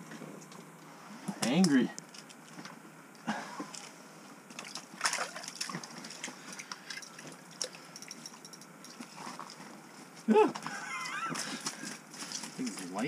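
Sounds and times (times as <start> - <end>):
water splashing: 4.5 - 7.8.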